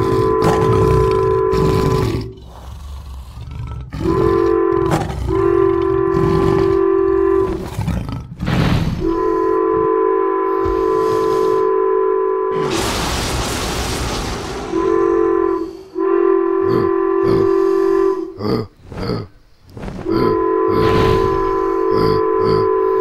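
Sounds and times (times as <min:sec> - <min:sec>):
train horn blasts: 0:00.0 - 0:02.0, 0:04.0 - 0:07.6, 0:09.0 - 0:12.8, 0:14.6 - 0:18.4, 0:20.1 - 0:23.0
train rumble: 0:19.4 - 0:23.0.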